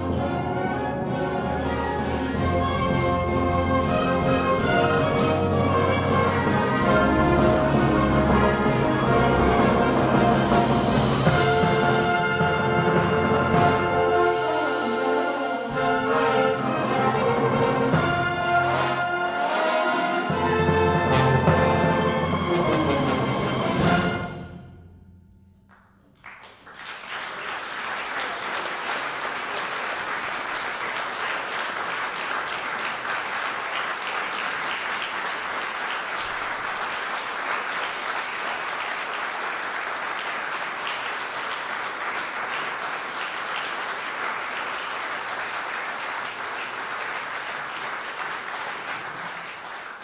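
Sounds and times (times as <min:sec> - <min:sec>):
audience applause: 0:26.2 - 0:50.0.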